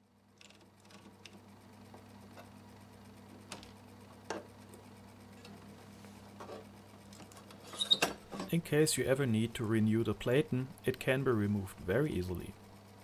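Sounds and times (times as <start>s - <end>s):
typewriter motor hum: 0.4s - 2.0s.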